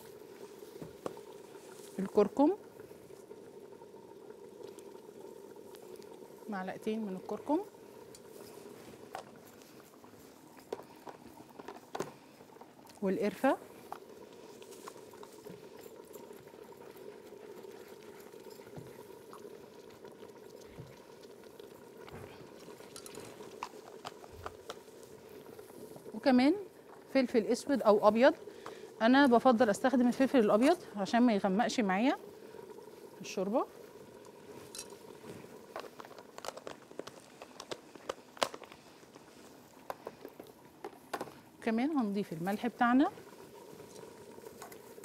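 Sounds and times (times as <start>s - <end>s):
soup bubbling in a pot: 0.0s - 45.0s
plastic gloves crinkling: 34.5s - 41.1s.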